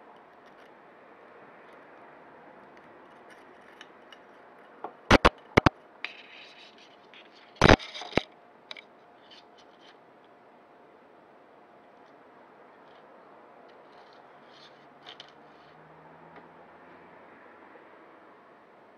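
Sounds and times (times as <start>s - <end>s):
wire scraping rustle: 2.7s - 10.0s, 13.7s - 15.8s
sharp clicks: 5.1s - 5.7s, 7.6s - 8.3s.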